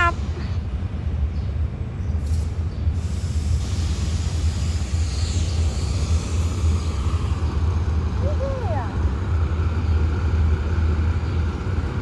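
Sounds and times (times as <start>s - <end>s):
diesel locomotive engine rumbling: 0.0s - 12.0s
hiss: 2.2s - 8.6s.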